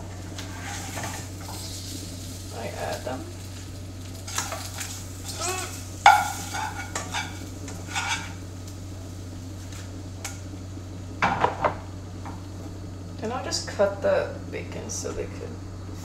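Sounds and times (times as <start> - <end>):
low hum: 0.0 - 16.0
spatula scraping frying pan: 0.2 - 2.1, 4.2 - 8.4.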